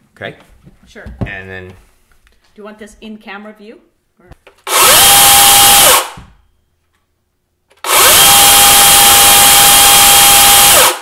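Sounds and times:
battery chainsaw whining: 0:04.7 - 0:06.2, 0:07.8 - 0:11.0.

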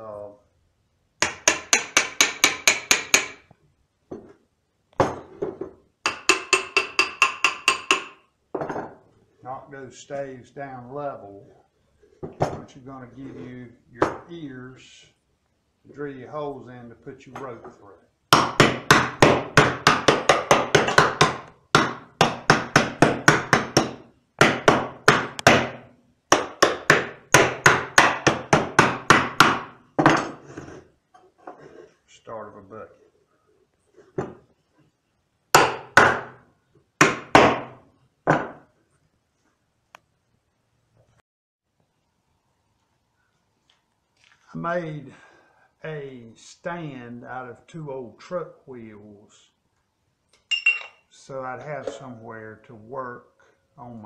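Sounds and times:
hammer knocking wooden staves: 0:01.2 - 0:03.4, 0:05.0 - 0:08.2, 0:18.3 - 0:30.4.

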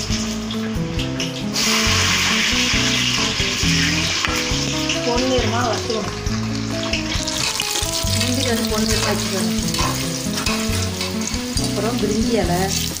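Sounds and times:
background music with held notes: 0:00.0 - 0:13.0
food sizzling in hot fat: 0:00.0 - 0:13.0
steel spoon stirring pot: 0:06.8 - 0:12.2.

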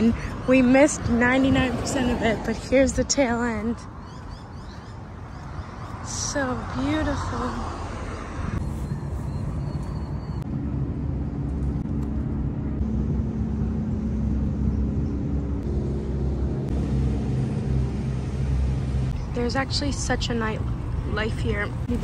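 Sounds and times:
boat engine droning: 0:06.0 - 0:22.0.

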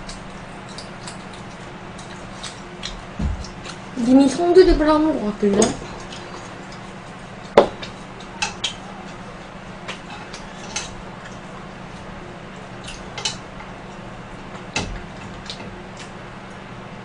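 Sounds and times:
chopsticks clicking on dishes: 0:07.8 - 0:08.8.

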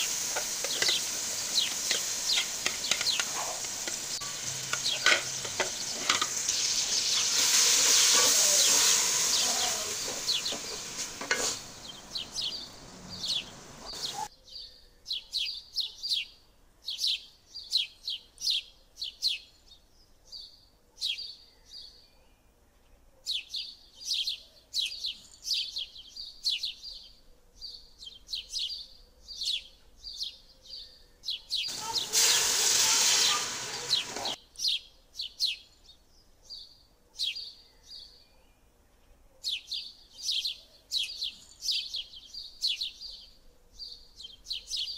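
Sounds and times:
masala sizzling in hot oil: 0:00.0 - 0:14.3, 0:31.7 - 0:34.4
small birds chirping: 0:00.0 - 0:44.9.

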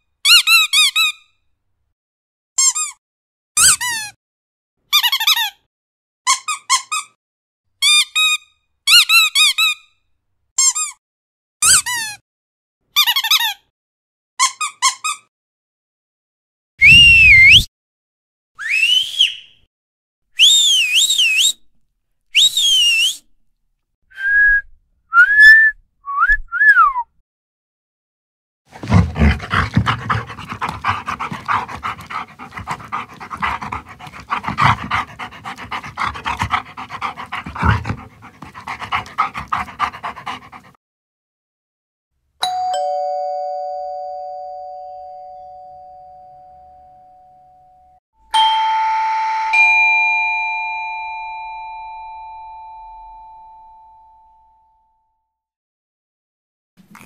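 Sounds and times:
dogs barking: 0:28.8 - 0:40.8
doorbell chime: 0:42.4 - 0:47.5, 0:48.4 - 0:54.6.

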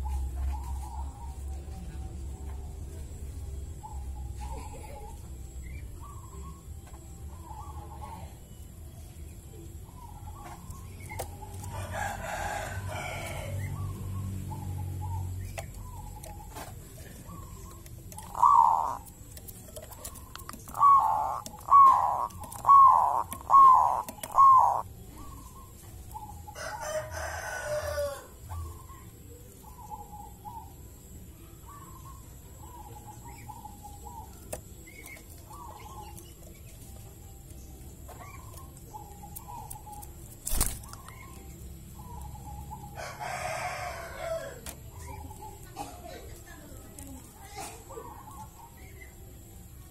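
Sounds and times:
dove cooing: 0:09.8 - 0:31.0
harsh noisy bird call: 0:20.7 - 0:24.9.

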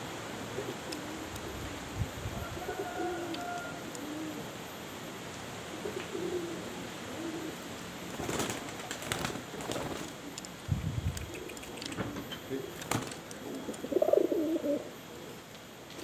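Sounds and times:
pigeons cooing: 0:00.5 - 0:04.7, 0:05.6 - 0:10.6, 0:11.2 - 0:15.4
pigeon wing-flapping: 0:08.1 - 0:10.4, 0:11.2 - 0:13.3.

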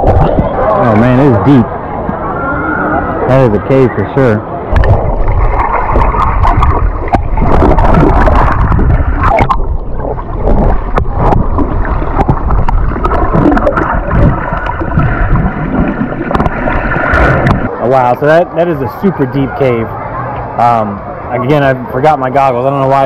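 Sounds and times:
muffled underwater water rushing: 0:00.0 - 0:23.0.

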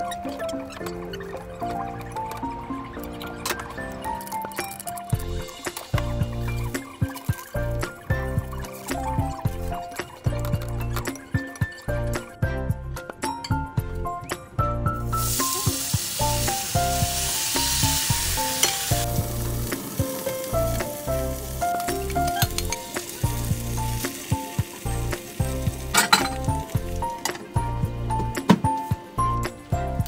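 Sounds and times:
background music with steady beat: 0:00.0 - 0:30.0
batter sizzling in frying pan: 0:05.1 - 0:10.4, 0:15.0 - 0:27.9.

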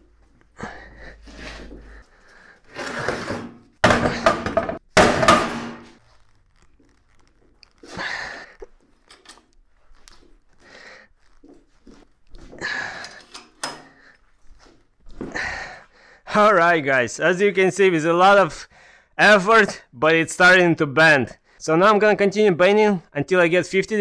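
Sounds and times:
heavy metal clanks and thuds: 0:03.8 - 0:06.0.

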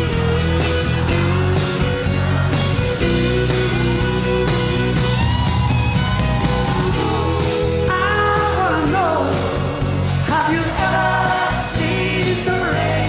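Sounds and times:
live rock band playing: 0:00.0 - 0:13.0
backing vocals singing: 0:06.7 - 0:13.0
male lead singer: 0:06.7 - 0:13.0.

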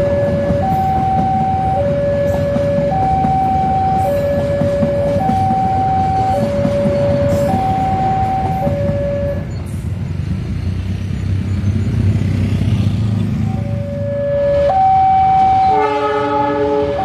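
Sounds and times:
level crossing alarm two tones: 0:00.0 - 0:09.4, 0:14.0 - 0:16.0
diesel locomotive drone: 0:00.0 - 0:17.0
train cars rolling past: 0:00.0 - 0:17.0.

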